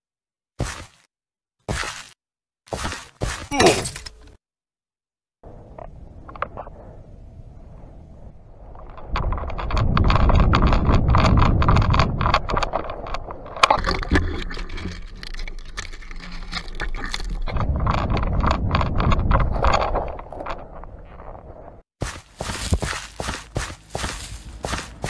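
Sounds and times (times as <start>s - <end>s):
hurried footsteps on sand: 0.6s - 1.1s, 1.7s - 3.6s, 22.0s - 25.0s
gear rattling: 8.6s - 21.4s
twigs rustling: 8.6s - 21.4s, 22.0s - 25.0s
camera handling rumble: 8.7s - 21.3s.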